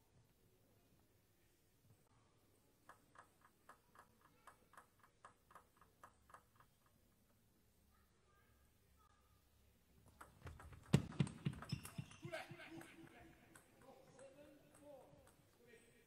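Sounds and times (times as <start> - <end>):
table tennis ball bouncing: 2.8 - 7.0, 10.0 - 16.0.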